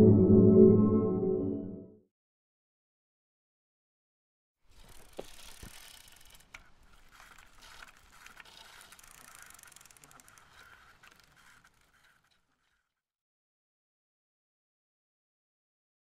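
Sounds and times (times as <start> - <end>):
faint mechanical ratcheting: 4.7 - 13.0.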